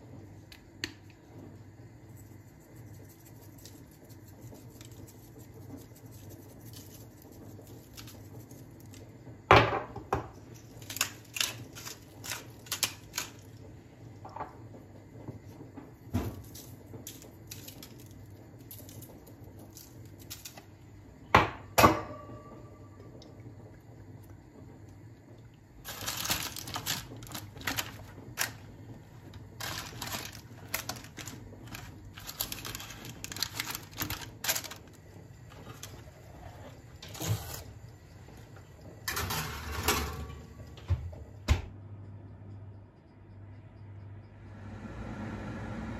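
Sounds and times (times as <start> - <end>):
parchment crinkling and rustling: 2.1 - 9.2, 10.4 - 13.7, 15.4 - 20.8, 25.8 - 37.8.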